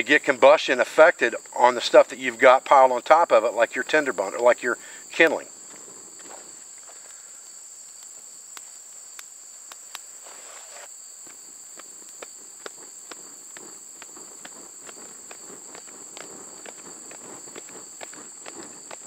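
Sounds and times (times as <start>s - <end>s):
fire crackling: 0.0s - 19.0s
high insect drone: 0.0s - 19.0s
tinder popping: 0.3s - 19.0s
hat fanning air whoosh: 10.4s - 19.0s.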